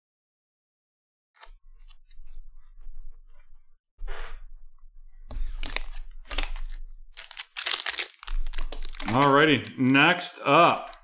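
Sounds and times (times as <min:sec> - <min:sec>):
card handling clicks and rustles: 0:05.4 - 0:11.0
foil wrapper crinkle: 0:05.6 - 0:11.0.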